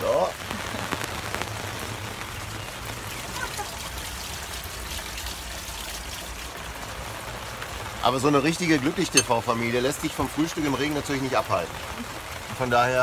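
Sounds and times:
heavy rain on plastic cover: 0:00.0 - 0:13.0
water running off: 0:00.0 - 0:13.0.

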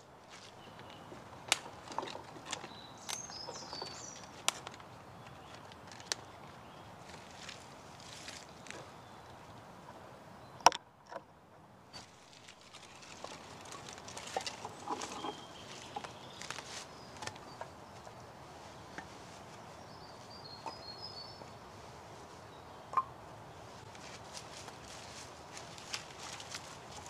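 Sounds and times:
footsteps in leaf litter: 0:00.2 - 0:00.8, 0:07.0 - 0:09.0, 0:12.0 - 0:22.6, 0:23.6 - 0:27.0
logs knocking together: 0:12.0 - 0:17.4.

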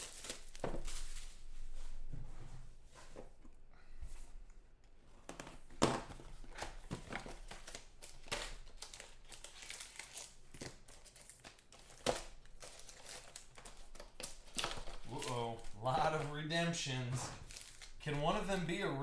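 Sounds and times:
foil wrappers crinkling and tearing: 0:00.0 - 0:01.5, 0:06.4 - 0:19.0.

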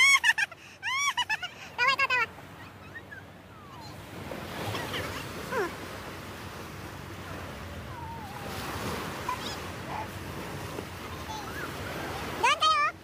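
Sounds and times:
sea waves washing onto sand: 0:03.9 - 0:13.0.

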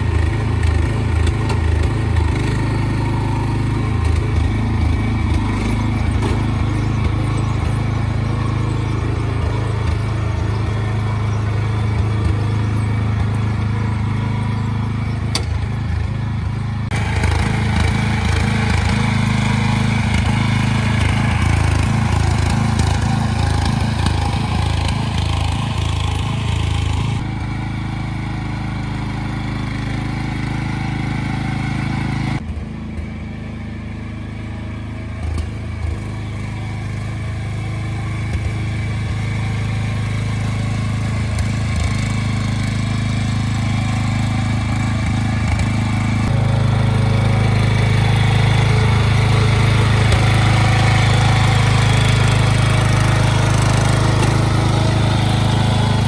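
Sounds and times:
small petrol engine running: 0:00.0 - 0:56.0.

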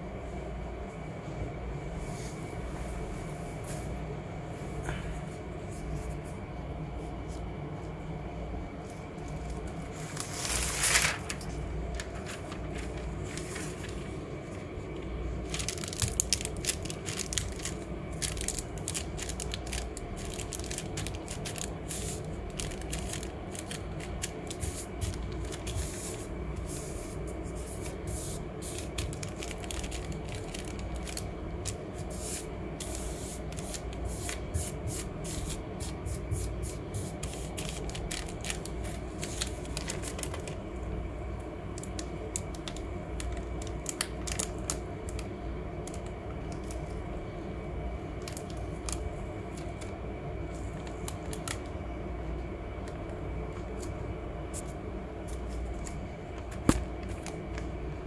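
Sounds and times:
steady low hum: 0:00.0 - 0:58.0
paper rustling and crackling: 0:08.8 - 0:40.9, 0:41.8 - 0:47.0, 0:48.2 - 0:51.8, 0:52.8 - 0:57.8.

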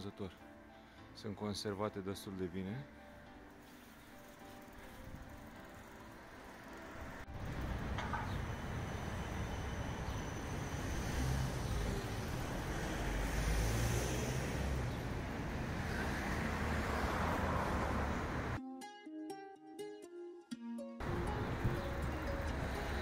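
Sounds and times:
tram passing: 0:03.6 - 0:18.6, 0:21.0 - 0:23.0
cars passing: 0:04.6 - 0:18.6, 0:21.0 - 0:23.0.

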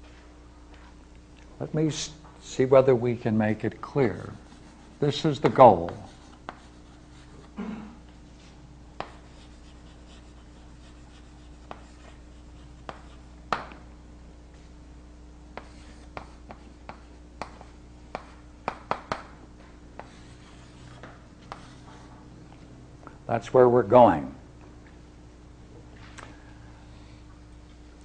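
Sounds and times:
low electrical hum: 0:00.0 - 0:28.0
writing taps and scratches on board: 0:04.4 - 0:07.5, 0:09.0 - 0:13.8, 0:15.6 - 0:19.4, 0:20.0 - 0:22.1.

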